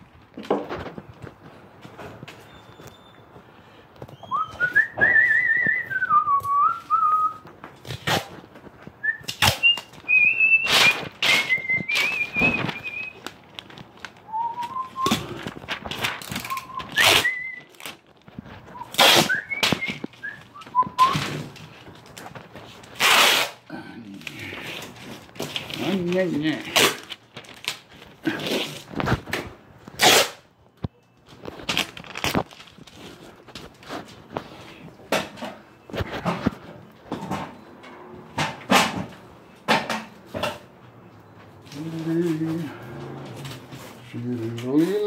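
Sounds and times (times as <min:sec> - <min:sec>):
person whistling a tune: 0:04.2 - 0:07.4, 0:09.0 - 0:13.2, 0:14.3 - 0:15.3, 0:16.4 - 0:17.7, 0:18.7 - 0:21.2.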